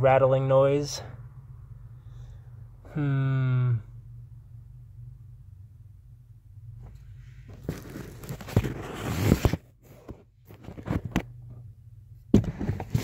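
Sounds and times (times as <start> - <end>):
rustling handling noise: 6.8 - 11.5.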